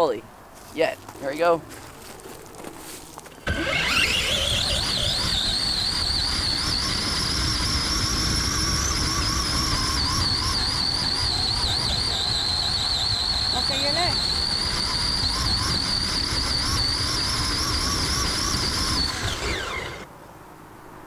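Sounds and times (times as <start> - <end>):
electric motor whining: 3.4 - 20.1.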